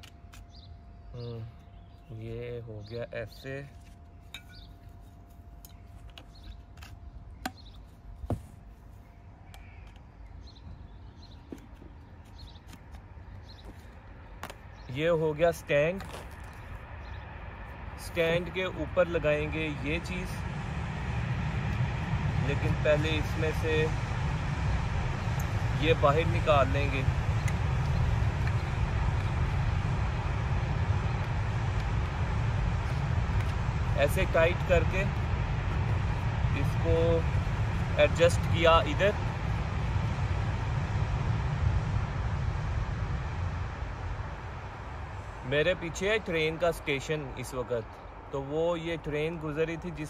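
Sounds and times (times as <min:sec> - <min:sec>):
passing train rumble: 0:13.1 - 0:50.0.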